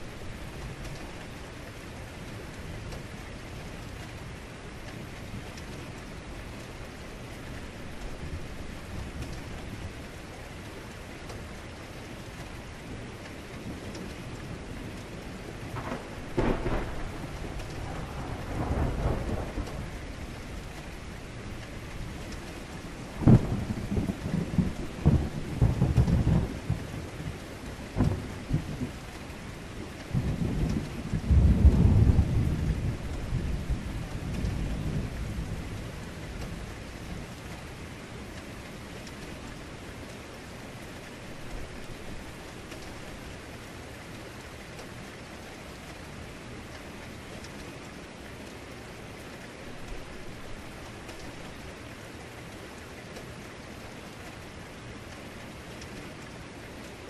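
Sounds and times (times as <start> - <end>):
heavy rain: 0.0 - 57.0
thunder rumbling: 13.6 - 37.6
thunder crack: 15.8 - 19.8.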